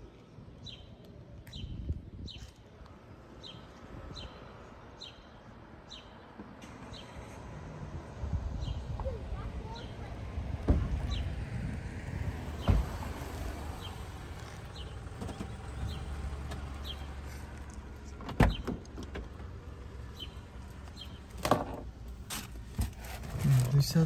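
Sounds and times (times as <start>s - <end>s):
car door thump: 12.6s - 13.0s, 18.2s - 19.3s.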